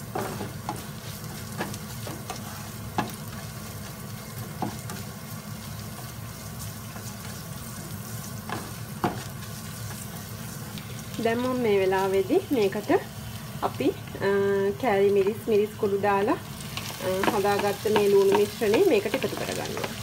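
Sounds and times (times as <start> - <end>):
aromatics sizzling in hot oil: 0.0 - 20.0.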